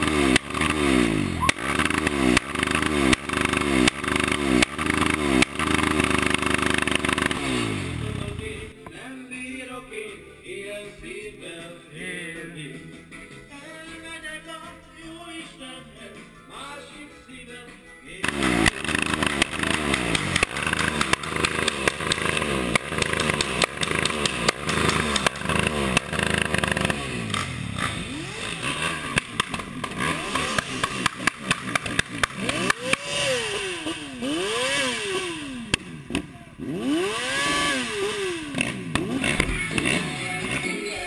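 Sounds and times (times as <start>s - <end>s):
dirt bike engine revving: 0.0s - 8.8s, 18.2s - 41.0s.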